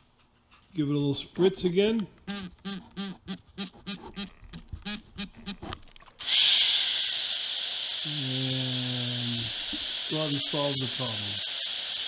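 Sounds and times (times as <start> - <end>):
gas hissing from torch: 6.2 - 12.0.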